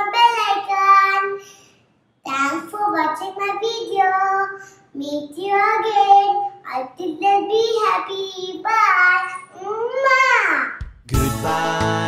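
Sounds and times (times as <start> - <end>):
girl singing: 2.3 - 11.8.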